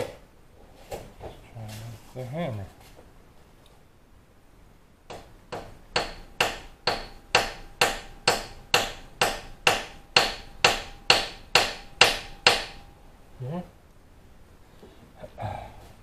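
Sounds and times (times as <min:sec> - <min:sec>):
hammer blows on metal pin: 0:05.1 - 0:13.0.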